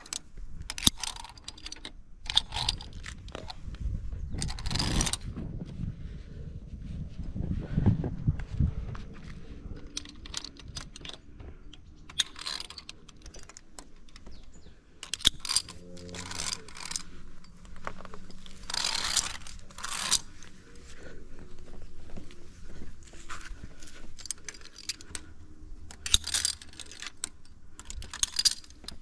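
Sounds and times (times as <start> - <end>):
metal carabiners clinking: 0.0 - 3.6, 4.3 - 5.2, 9.8 - 29.0
rustling: 12.0 - 29.0.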